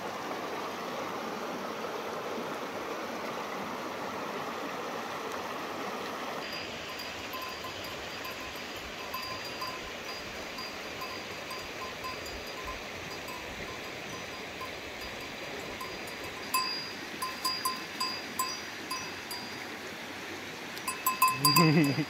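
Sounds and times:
goat bells clinking: 6.4 - 19.6, 20.8 - 22.0.

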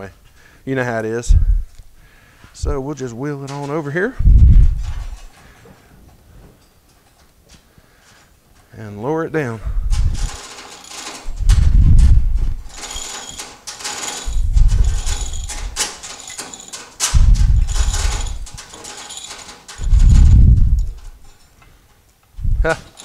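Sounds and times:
low rumble: 1.3 - 1.9, 4.2 - 5.3, 9.6 - 10.4, 11.3 - 12.7, 14.3 - 15.8, 17.2 - 18.6, 19.8 - 21.1
hoist chain rattling: 2.6 - 5.9, 9.6 - 23.0
hoist clicking: 9.9 - 23.0.

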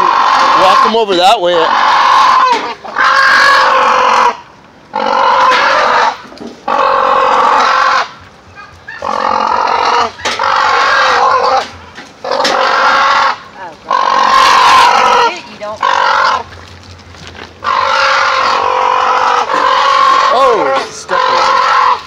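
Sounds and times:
cranes giving loud honking calls: 17.6 - 22.0.

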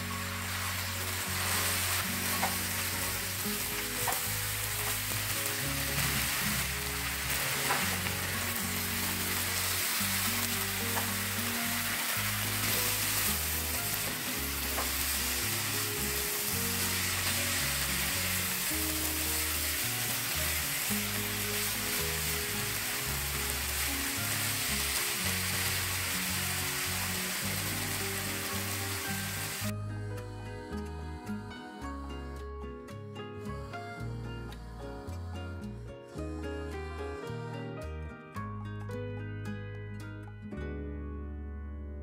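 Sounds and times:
food sizzling in a frying pan: 0.0 - 29.7.

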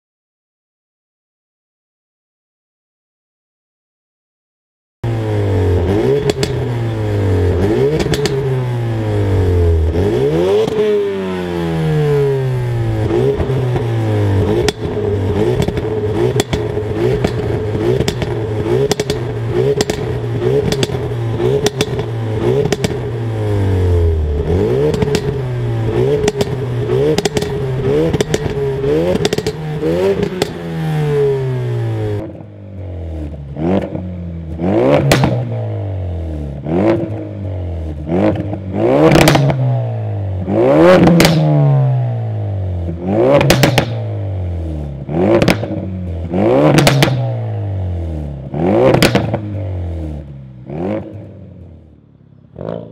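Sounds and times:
car engine revving: 5.0 - 52.9
exhaust crackles: 12.3 - 32.4.

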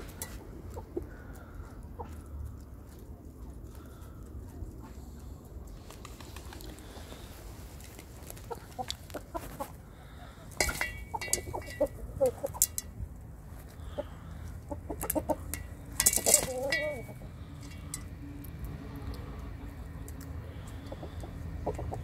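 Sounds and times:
beaks pecking grain from steel pan: 0.0 - 2.8, 7.8 - 22.0
chickens clucking: 0.0 - 7.2, 7.8 - 22.0.

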